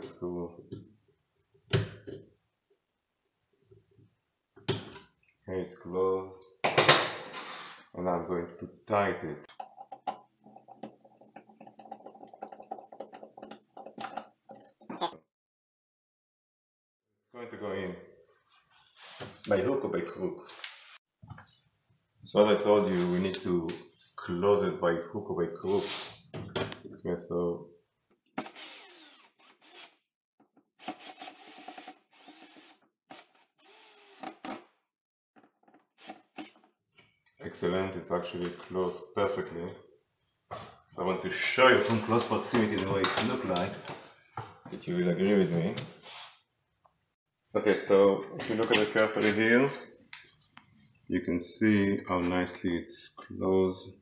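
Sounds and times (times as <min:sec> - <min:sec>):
cordless drill driving screws: 0:28.4 - 0:30.0, 0:30.8 - 0:34.7, 0:35.9 - 0:36.6
screwdriver clicking and scraping metal: 0:35.9 - 0:36.7.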